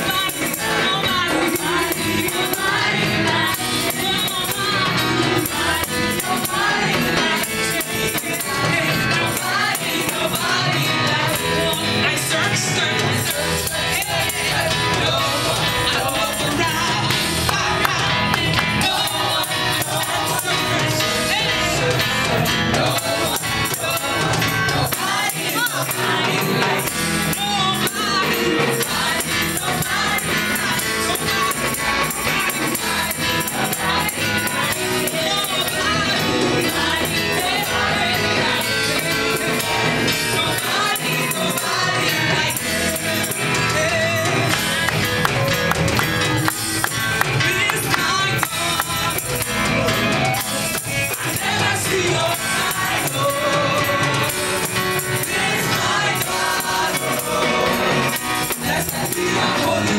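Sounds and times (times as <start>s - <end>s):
women singing together: 0.0s - 45.8s, 46.5s - 59.9s
keyboard and drums: 0.0s - 59.9s
congregation clapping: 16.4s - 20.6s, 44.3s - 49.6s.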